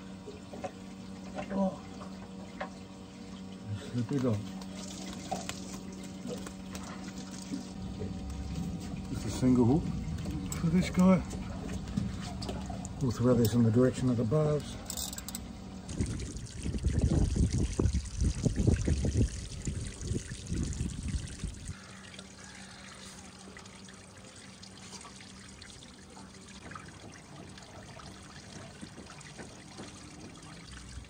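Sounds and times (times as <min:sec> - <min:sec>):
water trickling: 0:00.0 - 0:14.6, 0:15.2 - 0:31.0
faint steady hum: 0:00.0 - 0:31.0
heavy low rumbling: 0:07.7 - 0:21.8.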